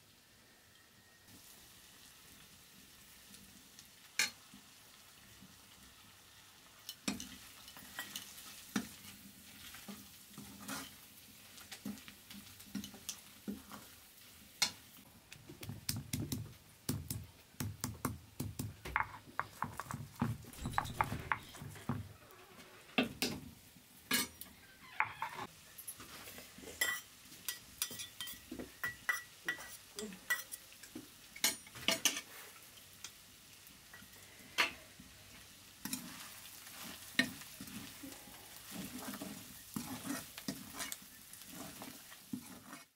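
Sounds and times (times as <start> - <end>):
curry sizzling: 0.0 - 42.9
spoon scraping metal pan: 10.4 - 11.0, 19.0 - 22.0, 38.6 - 42.9.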